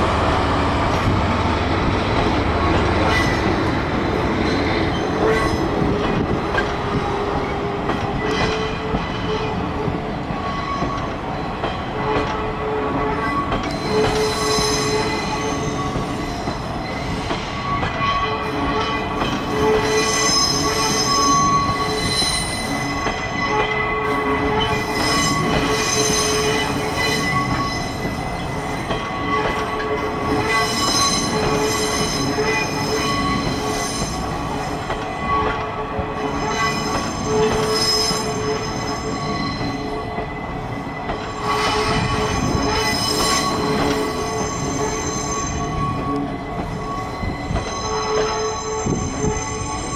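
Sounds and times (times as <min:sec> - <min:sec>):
train wheels rumbling on rails: 0:00.0 - 0:49.9
high wheel squeals: 0:13.1 - 0:18.3, 0:19.4 - 0:34.6, 0:36.2 - 0:40.6, 0:41.2 - 0:49.9.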